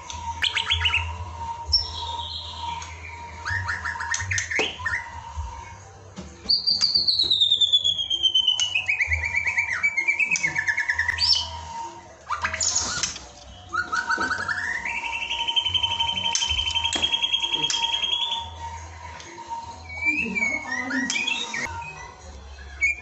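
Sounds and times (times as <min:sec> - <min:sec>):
bird singing whistles and trills: 0:00.0 - 0:23.0
descending whistled note: 0:06.5 - 0:23.0.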